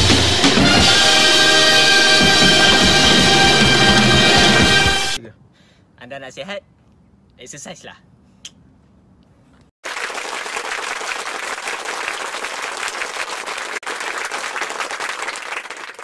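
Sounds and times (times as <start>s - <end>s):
crowd applause: 9.8s - 16.0s.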